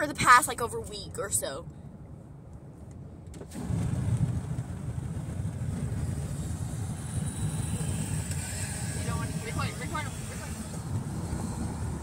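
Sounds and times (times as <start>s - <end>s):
road noise hiss: 2.2s - 12.0s
wind buffeting microphone: 3.1s - 12.0s.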